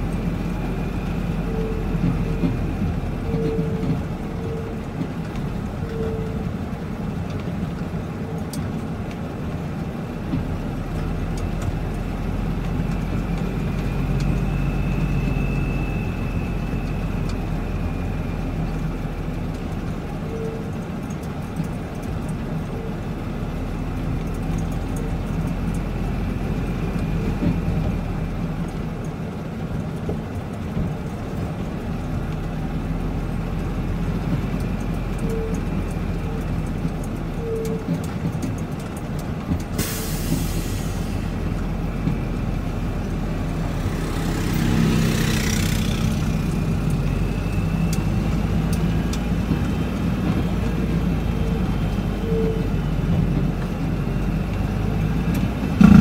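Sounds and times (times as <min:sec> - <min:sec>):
truck engine and road rumble: 0:00.0 - 0:56.0
faint high whine: 0:14.0 - 0:18.1.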